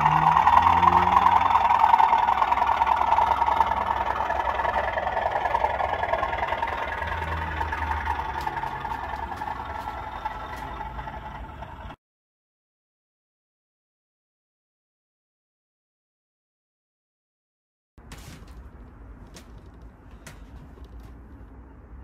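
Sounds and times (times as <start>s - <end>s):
model diesel locomotive engine: 0.0s - 12.0s.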